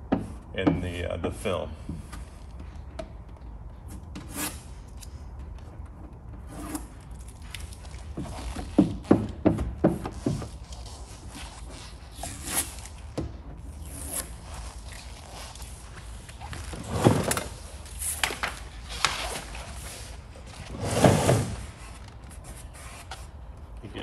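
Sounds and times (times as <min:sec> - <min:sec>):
squeegee rubbing on vinyl film: 0:10.1 - 0:20.4.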